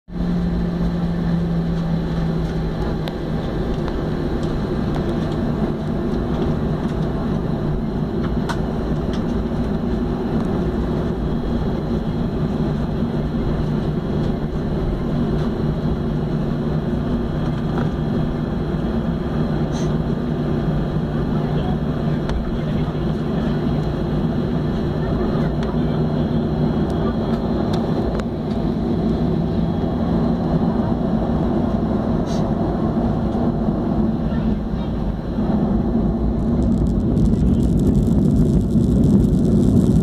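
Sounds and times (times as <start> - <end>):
jet engines droning hum: 0.1 - 40.0
cabin air rush: 2.4 - 40.0.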